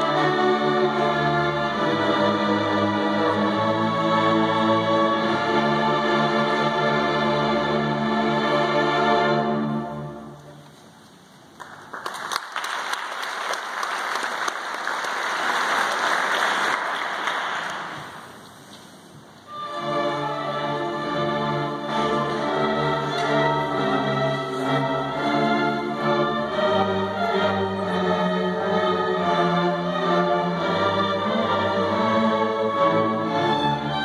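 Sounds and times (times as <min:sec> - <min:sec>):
orchestra playing: 0:00.0 - 0:10.8, 0:19.5 - 0:34.0
audience applauding: 0:11.6 - 0:18.3.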